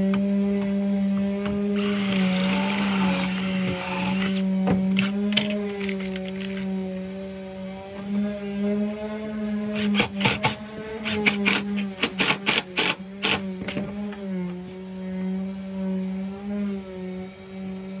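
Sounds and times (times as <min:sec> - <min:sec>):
cordless driver driving screw: 0:01.8 - 0:04.4, 0:09.8 - 0:13.5.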